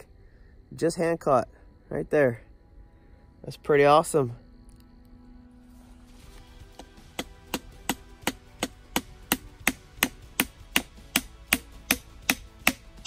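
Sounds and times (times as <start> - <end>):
hatchet chopping wood: 6.7 - 13.0.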